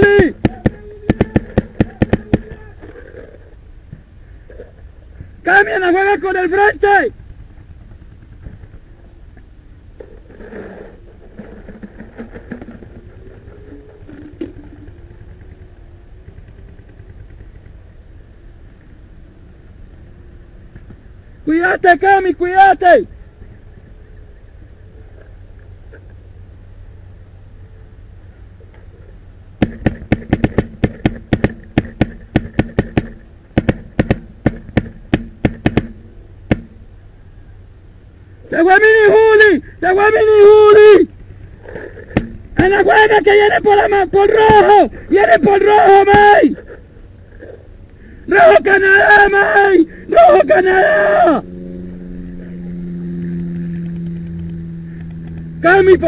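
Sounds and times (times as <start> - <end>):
scattered clattering: 10.0 - 17.9, 29.6 - 36.8, 41.1 - 45.7
paintball marker firing: 29.6 - 36.8
low rumble: 49.8 - 56.0.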